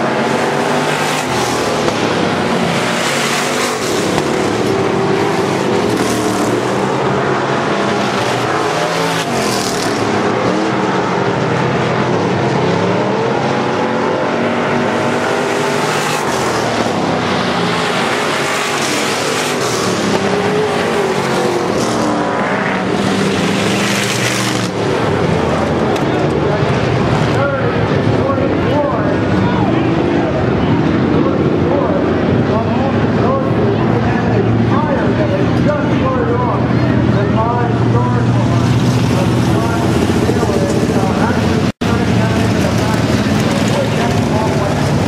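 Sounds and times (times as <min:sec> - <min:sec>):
race car engines: 0:00.0 - 0:45.0.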